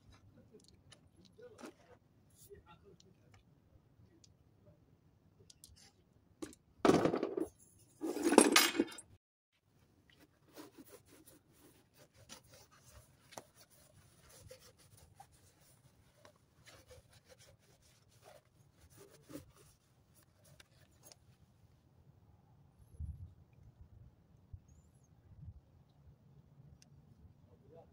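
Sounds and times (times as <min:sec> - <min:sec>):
metal parts and tools scraping: 0:07.0 - 0:09.1.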